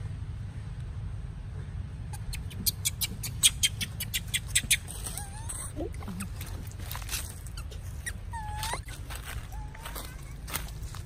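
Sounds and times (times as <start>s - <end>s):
monkey squeaks sliding in pitch: 2.1s - 6.4s, 7.4s - 9.0s.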